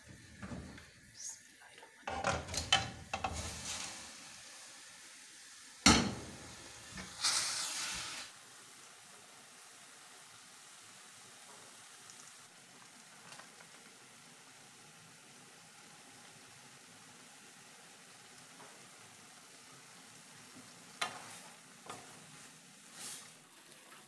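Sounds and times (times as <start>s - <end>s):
food sizzling in pan: 0.0s - 24.0s
metal cookware clattering and scraping: 2.1s - 4.0s, 5.9s - 6.4s.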